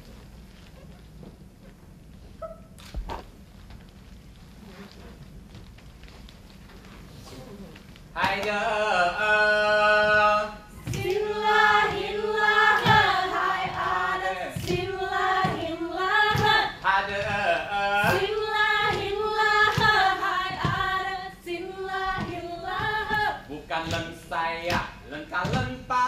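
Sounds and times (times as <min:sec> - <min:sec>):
group singing in unison: 0:08.4 - 0:24.9.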